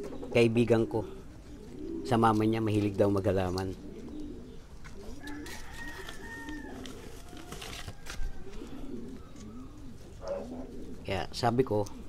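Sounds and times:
doves cooing: 0.0s - 12.0s
distant rooster crowing: 5.2s - 9.0s.

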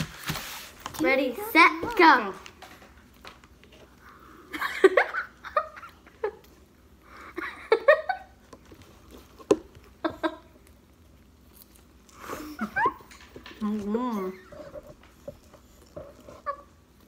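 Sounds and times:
girls giggling: 4.4s - 6.5s, 7.1s - 8.4s, 10.0s - 10.6s, 12.2s - 13.2s.

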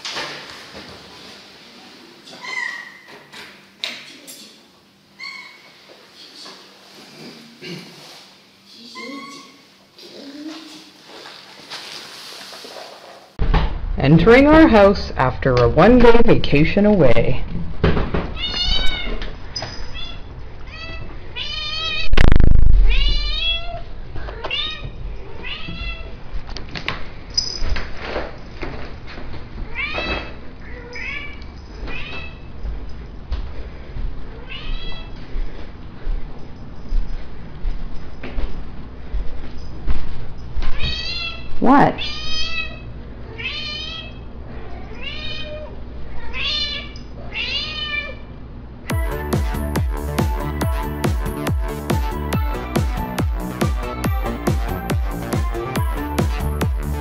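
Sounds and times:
loud thump with low rumble: 13.4s - 14.3s, 22.1s - 23.3s
cat meowing: 18.4s - 19.1s, 20.0s - 22.3s, 22.9s - 26.1s, 34.4s - 35.2s, 40.8s - 44.2s, 44.9s - 48.2s.

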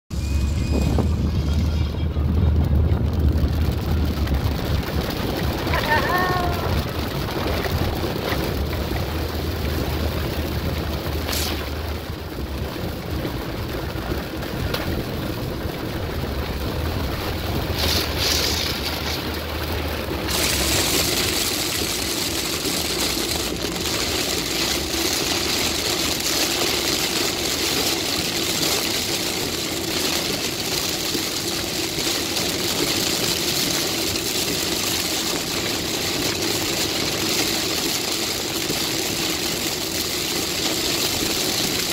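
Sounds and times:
engine and tyre noise: 0.1s - 41.9s
heavy rain on car windshield: 0.2s - 41.9s.

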